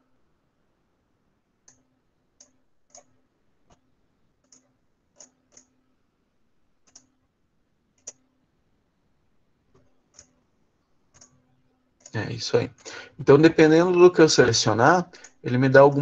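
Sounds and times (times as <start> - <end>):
computer mouse clicking: 1.6 - 5.8, 6.8 - 7.2, 7.9 - 8.3, 9.7 - 10.4, 11.1 - 11.4, 15.2 - 15.4.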